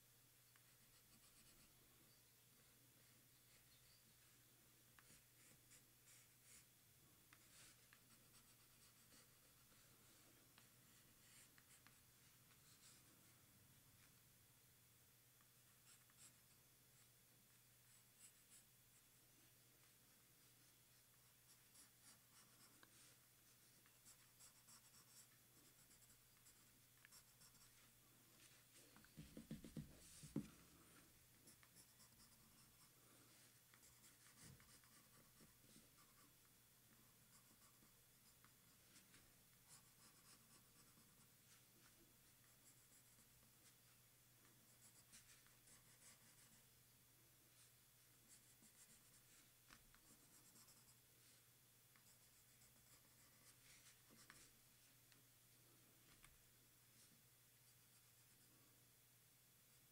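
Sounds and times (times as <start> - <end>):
pencil scratching on paper: 0.5 - 1.8, 5.0 - 6.7, 7.3 - 13.1, 15.8 - 17.1, 17.9 - 18.7, 19.8 - 30.5, 31.4 - 36.4, 37.1 - 44.0, 44.7 - 46.6, 48.3 - 54.6, 57.0 - 58.6.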